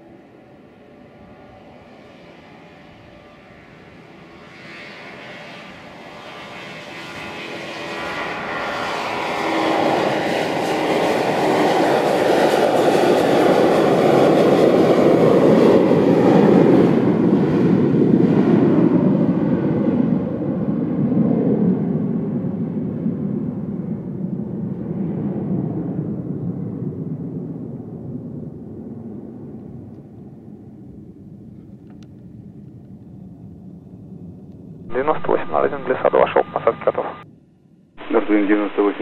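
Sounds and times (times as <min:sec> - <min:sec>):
jet engines roaring at takeoff: 0:00.0 - 0:24.1, 0:34.9 - 0:37.2, 0:38.0 - 0:39.0.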